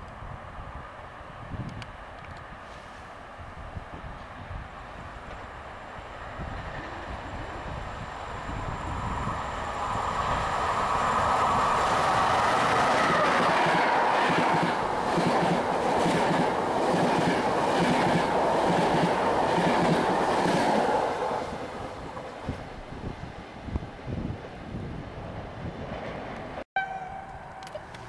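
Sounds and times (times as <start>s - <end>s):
train wheels clattering on rails: 12.0s - 21.0s.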